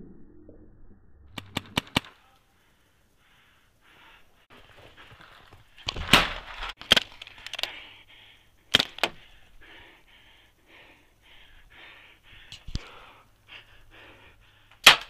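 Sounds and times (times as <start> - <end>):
paintball markers firing: 1.4 - 2.2, 5.8 - 7.8, 8.7 - 9.3, 14.8 - 15.0.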